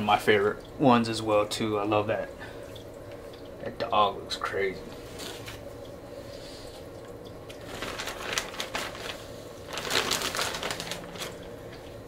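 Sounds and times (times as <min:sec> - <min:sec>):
plastic bag crinkling: 0:07.5 - 0:11.8.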